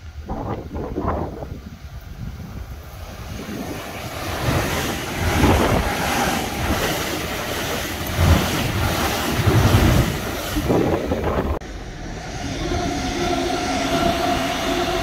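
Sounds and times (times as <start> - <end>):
train wheels rushing on rails: 0.0 - 15.0
wind buffeting microphone: 0.0 - 15.0
low thumps from train wheels: 2.3 - 11.6.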